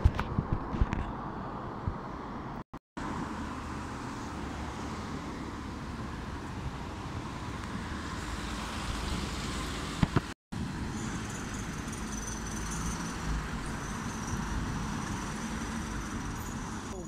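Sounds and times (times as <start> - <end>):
road traffic noise: 0.0 - 17.0.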